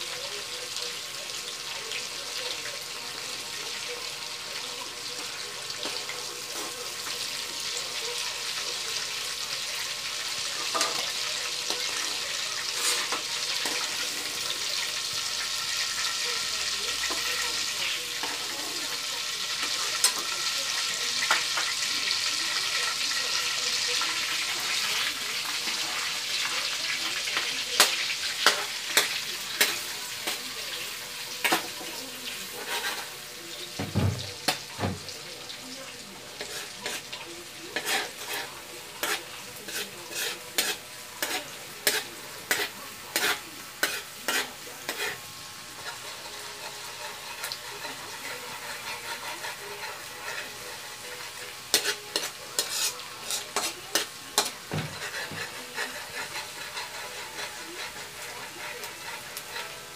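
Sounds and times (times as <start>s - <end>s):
garlic sizzling in oil: 0.0s - 59.9s
metal spoon scraping wok: 10.5s - 20.4s, 27.8s - 33.2s, 36.4s - 59.9s.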